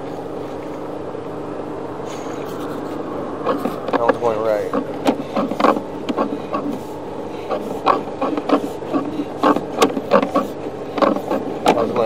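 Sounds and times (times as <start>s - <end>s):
steady hum: 0.0s - 12.0s
cable clicking and knocking: 3.4s - 6.8s, 7.8s - 11.9s.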